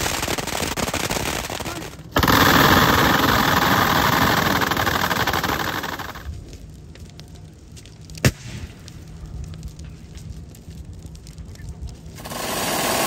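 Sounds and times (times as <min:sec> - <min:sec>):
machine guns rapid fire: 0:00.0 - 0:06.3
faint crackles: 0:00.0 - 0:13.0.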